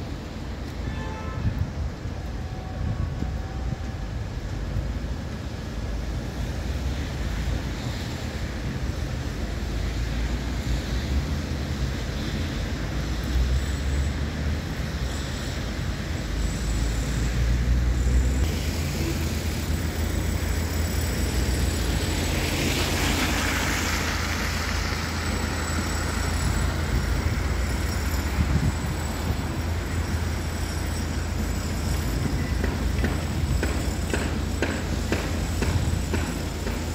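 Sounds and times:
steady city traffic: 0.0 - 36.9
wind rumbling on microphone: 1.4 - 9.9, 25.9 - 30.3
vehicle passing with hiss: 5.5 - 36.9.

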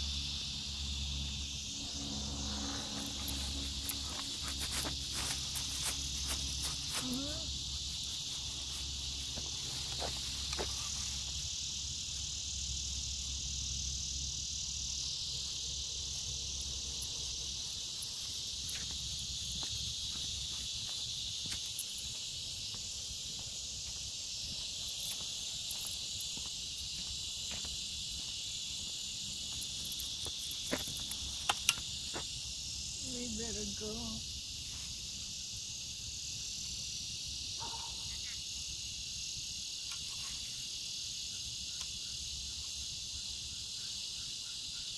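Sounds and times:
low hum: 0.0 - 6.9
crickets and insects chirring: 0.0 - 44.9.

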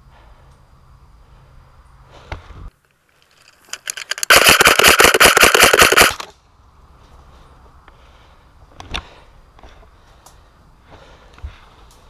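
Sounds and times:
airsoft rifle full-auto burst: 3.7 - 6.3.

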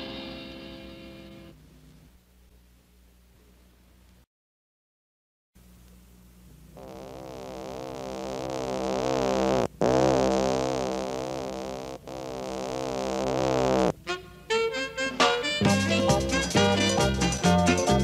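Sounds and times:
faint low hum: 0.0 - 4.3, 5.6 - 15.2
pulsing electronic keyboard chord: 15.6 - 18.0.

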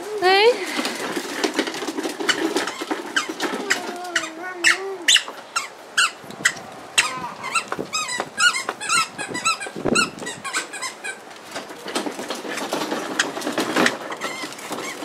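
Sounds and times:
plastic toy car squeaks: 1.2 - 15.0.

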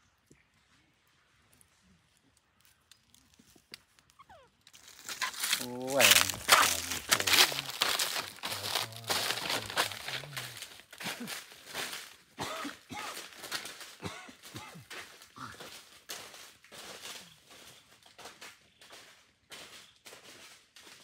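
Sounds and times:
footsteps crunching through dry leaves: 4.7 - 21.0.

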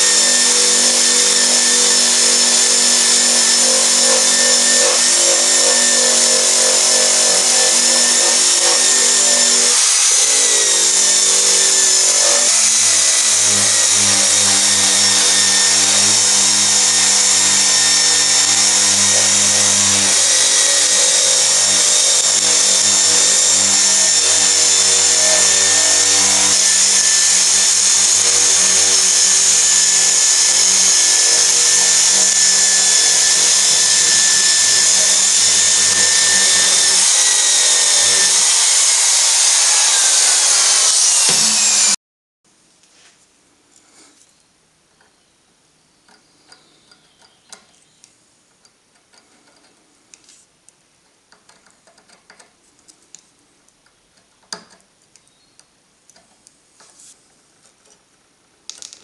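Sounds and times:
abrasive wheel grinding metal: 0.0 - 42.0
drill motor whine: 0.0 - 42.0.

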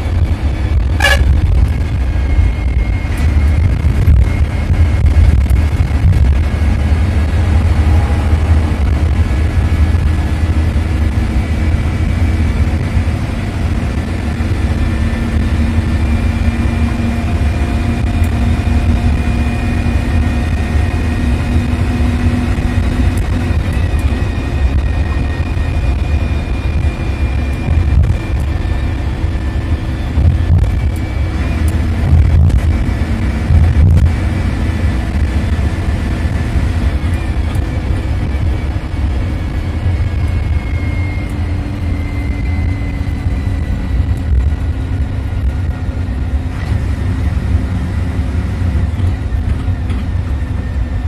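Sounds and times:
bus engine low rumble: 0.0 - 51.0
faint high whine: 36.3 - 46.3.

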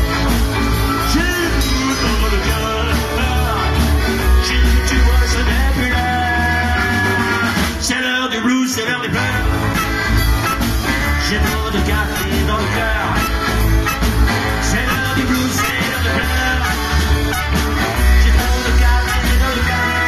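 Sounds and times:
live band playing blues rock: 0.0 - 20.0.

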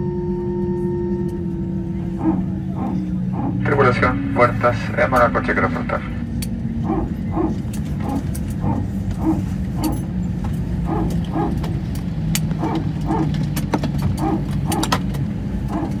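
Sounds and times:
jet engine idling rumble: 0.0 - 16.0
hydraulic pump barking: 2.0 - 3.9, 6.8 - 10.1, 10.8 - 16.0.

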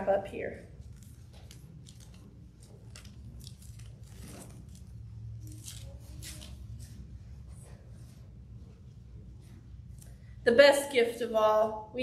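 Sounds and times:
steady low hum: 0.0 - 12.0
paper pages turning: 0.7 - 7.0.

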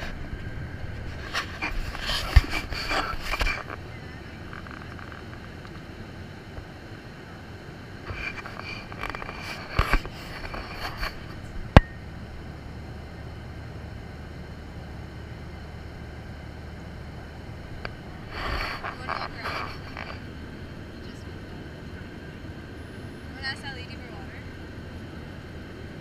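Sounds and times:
rustles and knocks: 0.0 - 3.8, 8.1 - 11.8.

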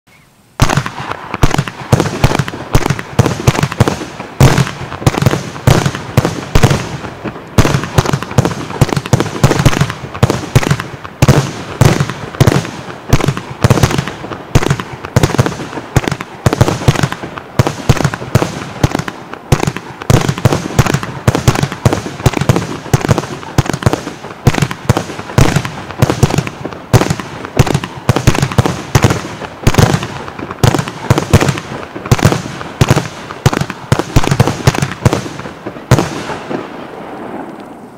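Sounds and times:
firework shells bursting: 0.6 - 37.8
firework tubes launching: 0.6 - 37.9.

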